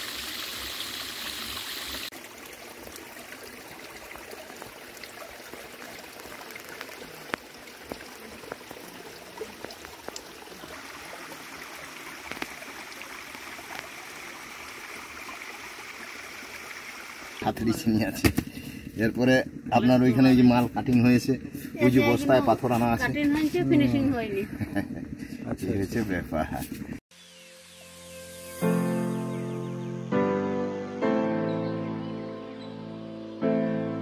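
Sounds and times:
small waterfall splashing: 0.0 - 24.4.

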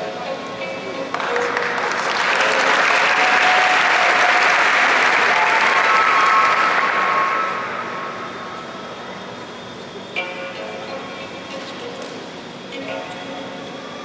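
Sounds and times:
audience applauding: 1.1 - 8.6.

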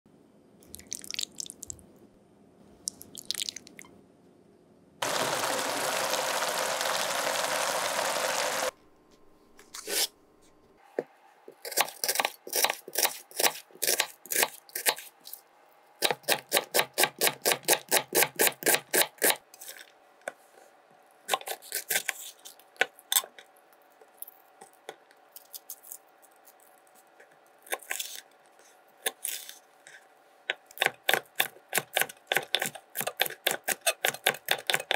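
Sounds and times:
steady hiss: 5.0 - 8.7.

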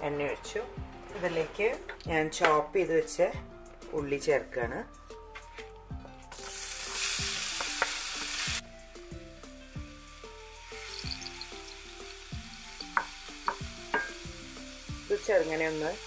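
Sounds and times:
background music with bass: 0.0 - 16.0
onion sizzling in oil: 6.2 - 16.0.

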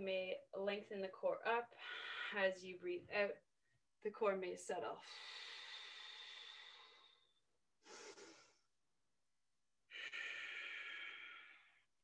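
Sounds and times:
slow breathing: 1.7 - 2.4, 5.0 - 8.7, 9.9 - 11.9.

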